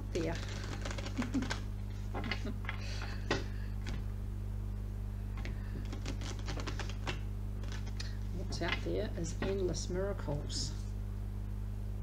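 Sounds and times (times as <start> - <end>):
steady low hum: 0.0 - 12.0
playing cards clicking: 0.4 - 1.6, 5.4 - 8.1.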